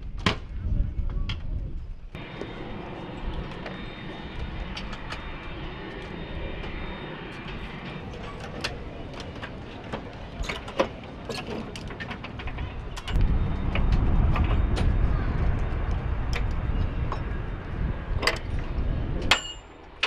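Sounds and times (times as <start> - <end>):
faint high whine: 2.2 - 9.8, 12.8 - 19.6
machinery noise: 2.2 - 20.0.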